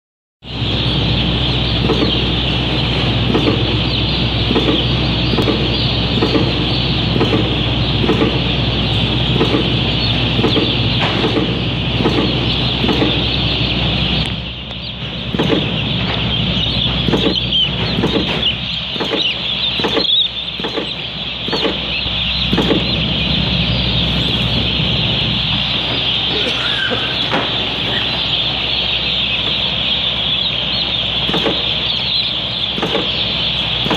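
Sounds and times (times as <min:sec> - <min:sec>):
low machine hum: 0:00.4 - 0:33.9
chicks peeping: 0:00.5 - 0:33.9
vaccinator clicking: 0:04.5 - 0:08.6.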